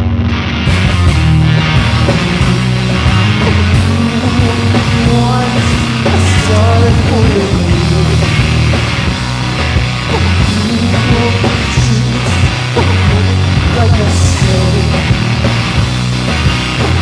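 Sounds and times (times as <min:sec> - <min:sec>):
heavy rock band playing: 0:00.0 - 0:17.0
person singing: 0:02.1 - 0:08.7, 0:10.1 - 0:15.3.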